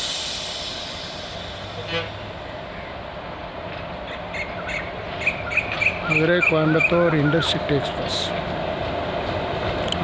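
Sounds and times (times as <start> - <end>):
electric train rumbling: 0.0 - 10.0
train horn toot: 1.8 - 2.2.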